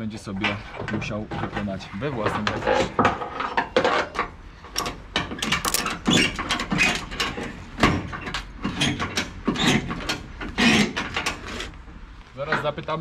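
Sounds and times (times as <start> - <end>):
ratchet strap handle clacking: 4.8 - 6.4.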